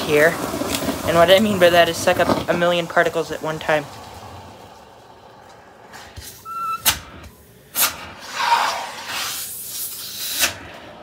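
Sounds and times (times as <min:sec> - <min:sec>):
brief whistle: 0:06.4 - 0:07.0.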